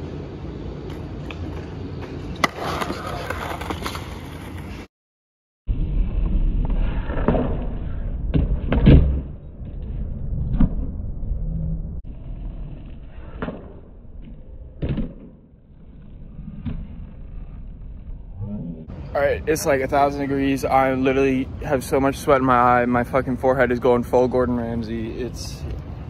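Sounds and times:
skateboard wheels rolling on concrete: 0:00.0 - 0:04.9, 0:05.7 - 0:26.0
skateboard clacking on ground: 0:00.8 - 0:04.7.

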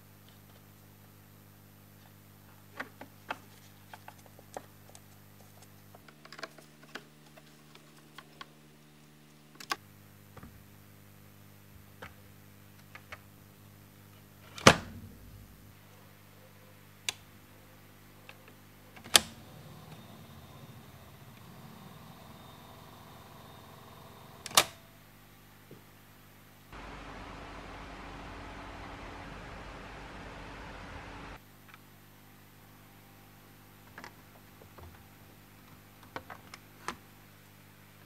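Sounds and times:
low hum: 0:14.9 - 0:16.0, 0:19.0 - 0:24.6, 0:26.8 - 0:31.4.

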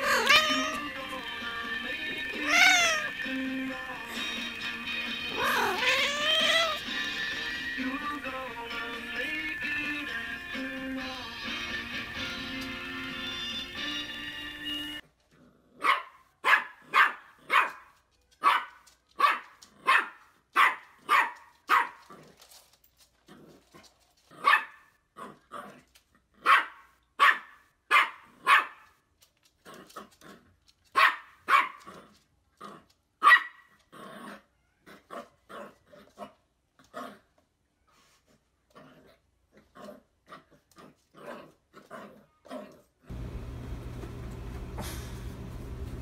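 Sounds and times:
puppy barking: 0:00.0 - 0:00.8, 0:02.5 - 0:03.1, 0:15.8 - 0:22.1, 0:24.4 - 0:25.3, 0:26.4 - 0:28.9, 0:30.9 - 0:31.9, 0:33.2 - 0:33.7.

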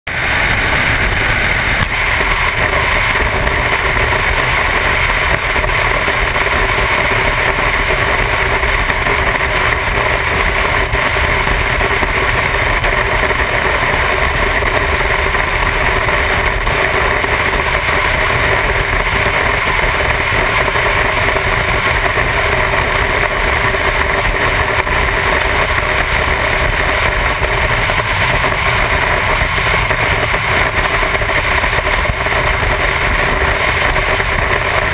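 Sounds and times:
motorcycle engine cruising: 0:18.3 - 0:34.9.

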